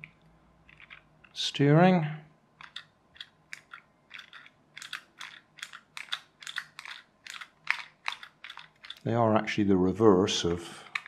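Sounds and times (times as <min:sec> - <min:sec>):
sharp plastic clicks: 0:02.6 - 0:09.1.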